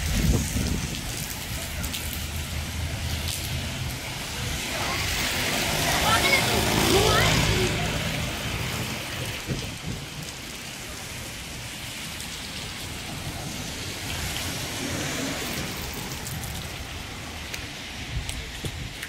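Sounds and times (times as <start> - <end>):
rain falling on wet street: 0.0 - 19.0.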